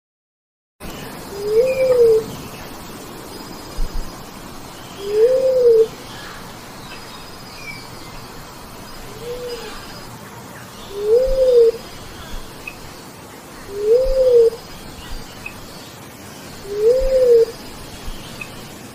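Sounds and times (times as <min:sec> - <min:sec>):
faint chirping: 0:00.8 - 0:18.9
dove cooing: 0:01.3 - 0:02.4, 0:05.0 - 0:06.0, 0:09.0 - 0:10.1, 0:10.9 - 0:12.5, 0:13.6 - 0:14.7, 0:16.6 - 0:17.6.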